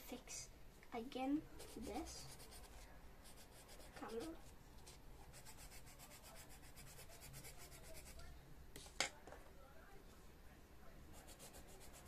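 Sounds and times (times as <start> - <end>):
pencil scratching on paper: 1.6 - 4.5, 5.2 - 8.3, 11.1 - 12.0.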